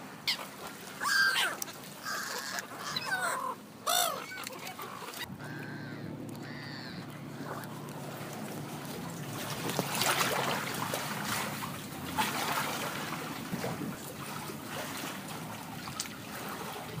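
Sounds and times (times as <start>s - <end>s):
water splashing and lapping: 0.0s - 17.0s
steady low rumble: 5.2s - 14.7s.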